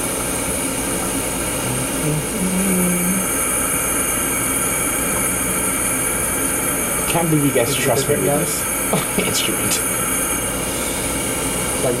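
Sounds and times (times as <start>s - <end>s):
burner and nebulizer steady hiss: 0.0s - 12.0s
brief low hum: 1.6s - 3.2s.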